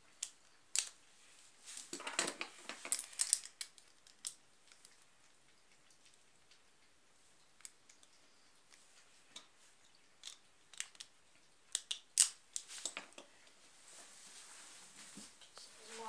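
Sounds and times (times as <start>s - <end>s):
plastic parts clicking and clattering: 1.8s - 5.0s, 10.2s - 11.1s, 11.7s - 13.3s.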